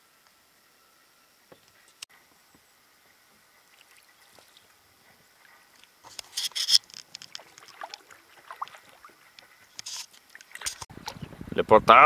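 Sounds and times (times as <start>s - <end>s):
paddle splashing water: 3.0s - 11.4s
water dripping: 3.1s - 6.0s, 6.9s - 10.8s.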